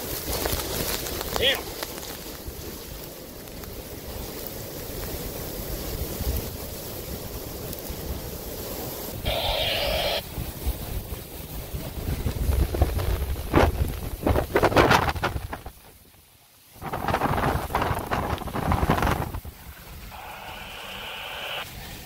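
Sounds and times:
heavy rain: 0.0s - 22.0s
rushing wind: 0.0s - 22.0s
wind buffeting microphone: 3.8s - 16.1s, 16.7s - 20.6s
brief hiss: 8.9s - 10.2s, 20.0s - 22.0s.

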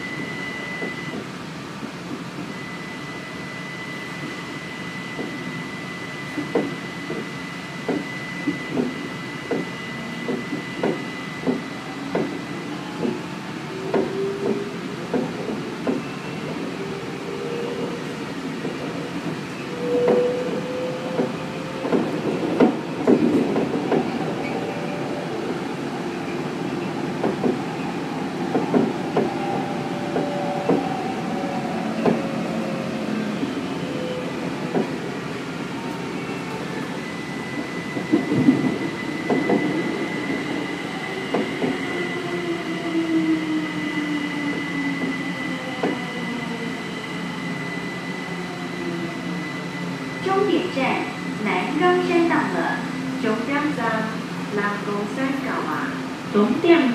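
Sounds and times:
train rolling noise: 0.0s - 56.9s
train whining tones: 0.0s - 56.9s.

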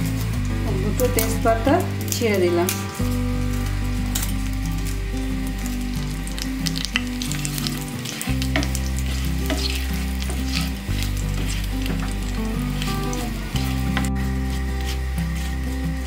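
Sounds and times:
soft background music: 0.0s - 16.0s
spices sizzling in hot oil: 0.0s - 16.0s
wooden spatula stirring: 6.4s - 16.0s.

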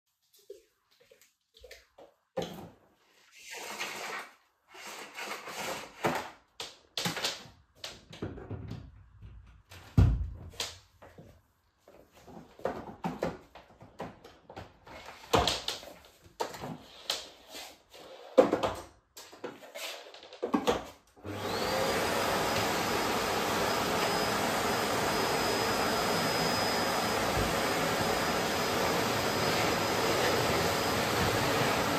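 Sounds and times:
vacuum cleaner motor whine: 21.2s - 31.9s.

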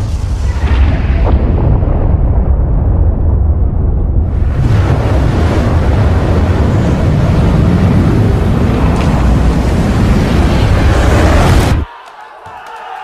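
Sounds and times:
deep explosion rumble: 0.0s - 11.8s.

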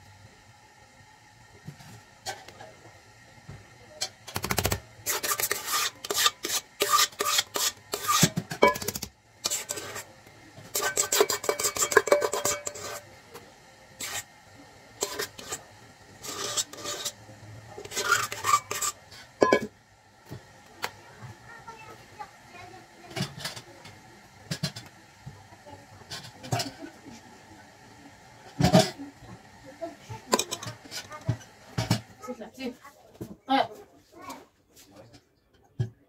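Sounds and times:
metal spoon scraping metal pan: 5.1s - 10.1s, 10.7s - 13.0s, 14.0s - 14.3s, 15.0s - 15.6s, 16.2s - 17.2s, 17.8s - 19.7s, 30.3s - 32.0s.

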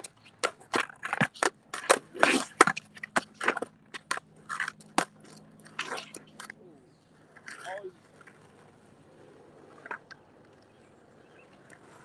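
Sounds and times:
skateboard clacking on ground: 0.0s - 6.6s
skateboard scraping: 0.0s - 6.6s, 11.7s - 12.0s.

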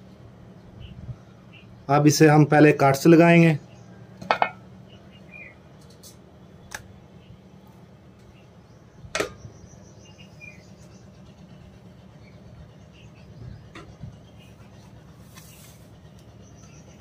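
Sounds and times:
colander knocks: 4.2s - 4.6s.

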